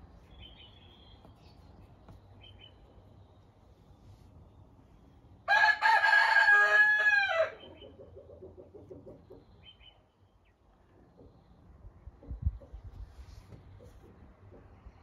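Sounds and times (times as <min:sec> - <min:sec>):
rooster crowing: 0:05.4 - 0:07.7.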